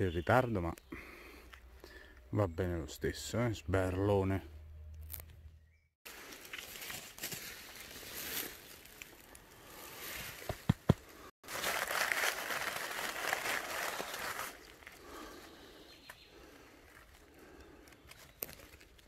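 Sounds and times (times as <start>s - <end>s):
dry leaves rustling: 6.1s - 10.5s, 11.2s - 15.4s.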